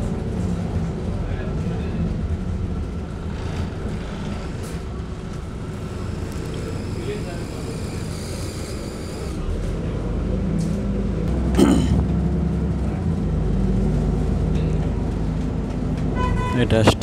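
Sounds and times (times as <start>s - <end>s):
bus engine and road drone: 0.0s - 17.0s.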